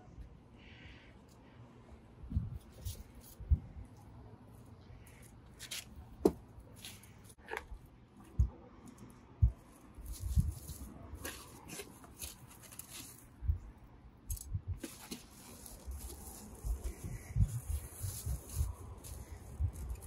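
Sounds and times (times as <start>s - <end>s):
plastic bag rustling: 10.0s - 13.4s, 14.3s - 20.0s.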